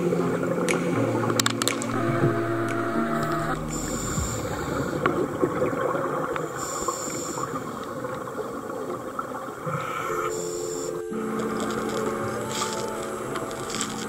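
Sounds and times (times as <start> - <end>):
underwater crackling hiss: 3.3 - 8.3.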